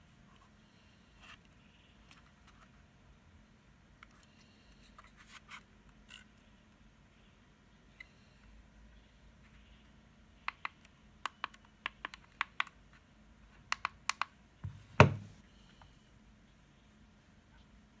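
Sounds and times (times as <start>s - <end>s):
device set down on table: 14.6s - 15.3s.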